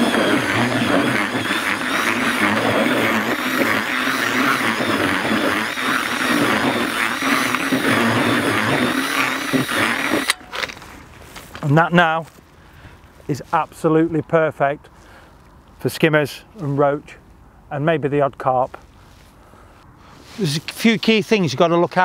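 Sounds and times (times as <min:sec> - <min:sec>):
cordless drill mixing groundbait: 0:00.0 - 0:11.8.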